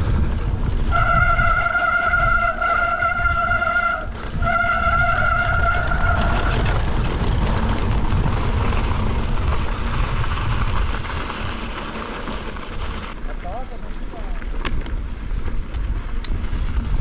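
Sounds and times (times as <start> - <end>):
wind on microphone: 0.0 - 11.8, 14.6 - 17.0
bike tyres rumbling over ground: 0.0 - 17.0.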